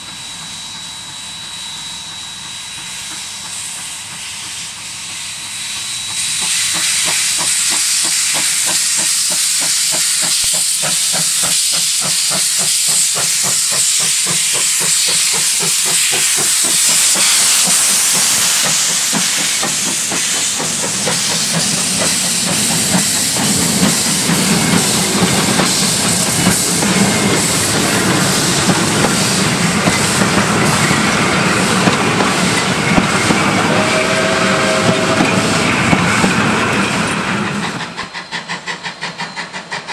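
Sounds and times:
loud steam hiss: 0:00.0 - 0:39.9
steam locomotive exhaust beats: 0:00.0 - 0:39.9
train carriages rumbling past: 0:05.2 - 0:39.9.

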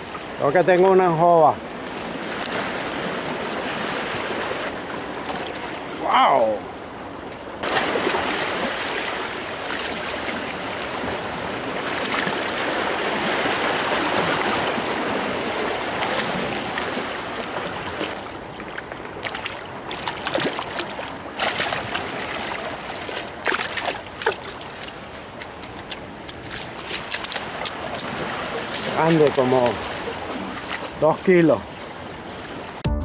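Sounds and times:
rush of water: 0:00.0 - 0:32.8
fish thrashing splashing water: 0:11.8 - 0:31.0.

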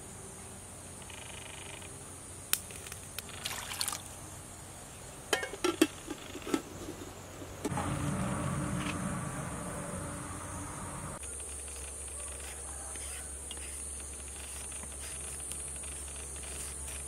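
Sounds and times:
metal lid clinking on pot: 0:05.3 - 0:05.9.

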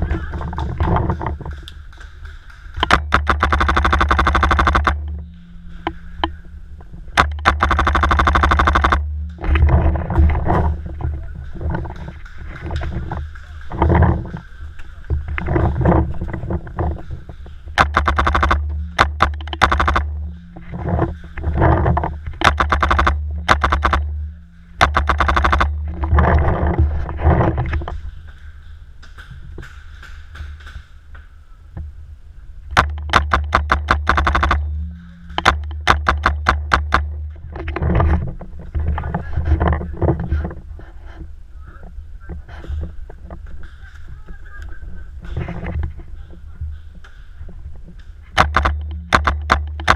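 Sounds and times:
low rumble of handling noise: 0:00.0 - 0:49.9
paintball marker firing rapidly: 0:02.7 - 0:05.0, 0:07.2 - 0:09.1, 0:17.8 - 0:20.4, 0:22.4 - 0:24.2, 0:24.8 - 0:25.9, 0:32.8 - 0:34.7, 0:35.3 - 0:37.2, 0:48.4 - 0:49.9.

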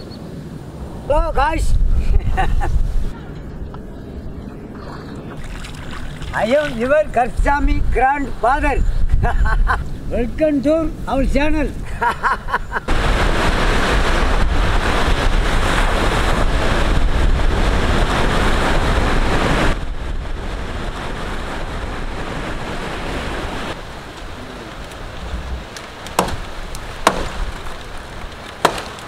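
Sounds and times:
wind buffeting microphone: 0:00.0 - 0:28.6
sea surf breaking on beach: 0:12.0 - 0:29.0.

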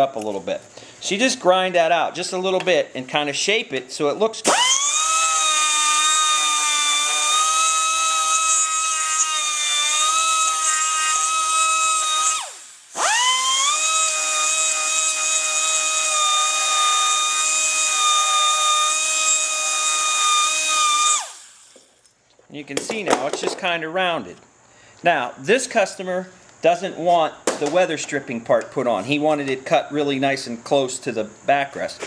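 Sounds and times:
die grinder high whine: 0:04.4 - 0:21.9.

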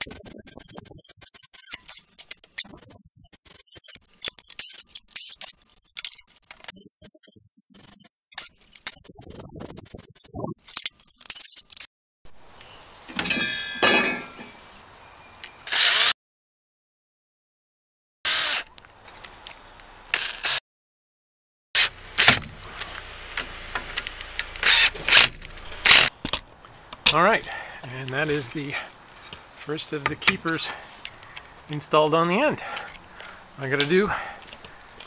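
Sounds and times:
cordless drill drilling metal: 0:00.0 - 0:11.7
drill driving screws: 0:00.0 - 0:11.8, 0:15.7 - 0:16.1, 0:18.3 - 0:18.6, 0:20.2 - 0:20.6, 0:24.6 - 0:26.1.

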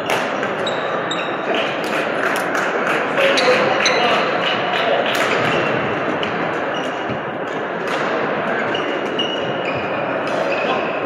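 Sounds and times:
racket hitting shuttlecock: 0:00.0 - 0:00.6, 0:04.5 - 0:09.5
shoes squeaking on court: 0:00.0 - 0:01.8, 0:05.3 - 0:11.0
hubbub of busy hall: 0:00.0 - 0:11.0.

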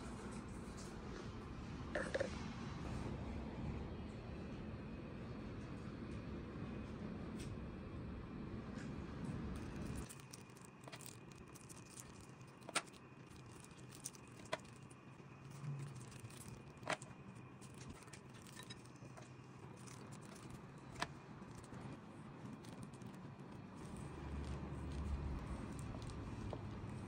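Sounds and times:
faint handling noise: 0:09.6 - 0:27.0.

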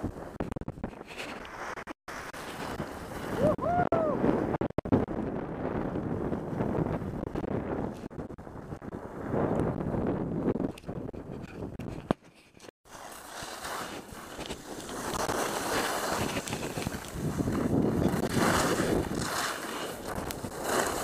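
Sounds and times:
wind on microphone: 0:00.0 - 0:12.7, 0:13.7 - 0:21.0
skis scraping over snow: 0:00.1 - 0:03.4, 0:12.9 - 0:21.0.

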